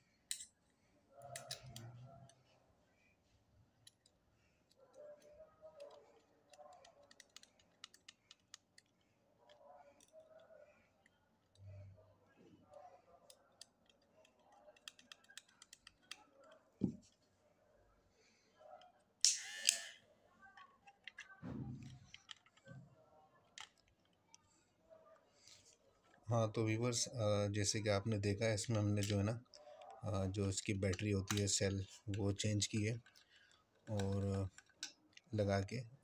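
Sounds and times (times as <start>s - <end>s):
screwdriver turning screws: 19.2s - 20.0s.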